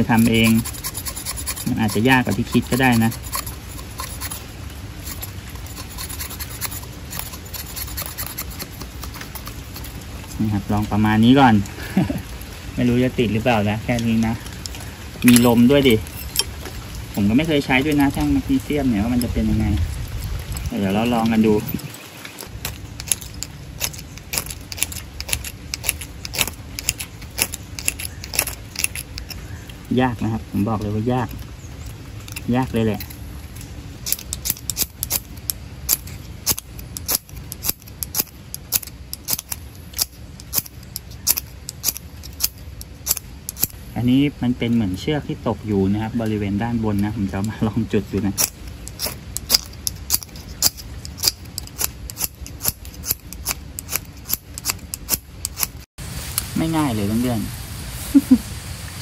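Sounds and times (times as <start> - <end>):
striker rasping on fire-starter rod: 0.0 - 11.0, 19.0 - 29.5, 30.8 - 43.8, 48.1 - 55.9.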